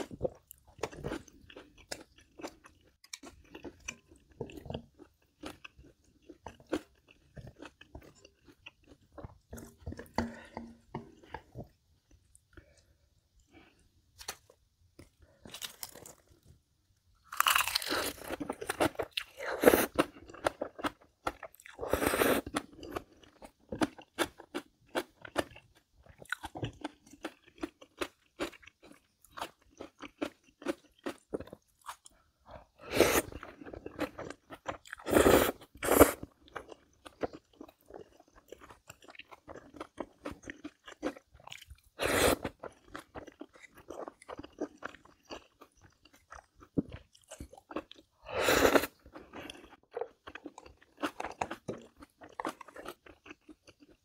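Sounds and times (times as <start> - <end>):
person chewing: 0.0 - 16.5, 17.2 - 54.0
crunching bites: 17.2 - 19.2.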